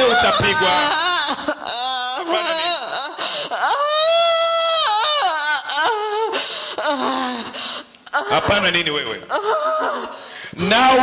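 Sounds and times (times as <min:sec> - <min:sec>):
woman wailing and crying: 0:00.0 - 0:10.3.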